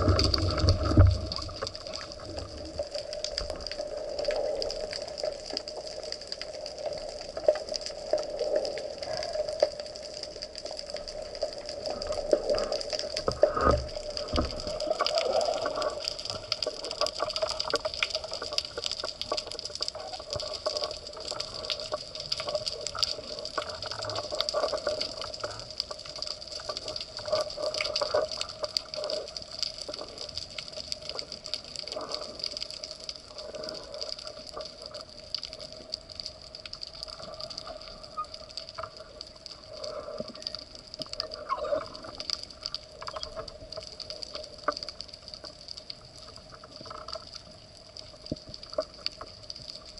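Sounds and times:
small crackling clicks: 0.0s - 49.9s.

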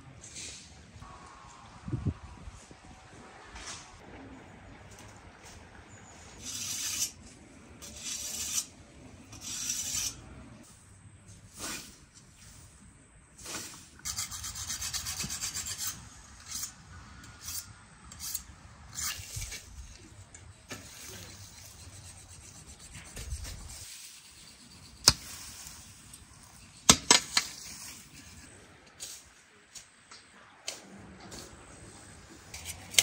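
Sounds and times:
rake dragged through grass: 9.4s - 12.8s, 13.4s - 14.2s, 20.7s - 22.0s, 23.0s - 26.7s, 27.3s - 29.6s.

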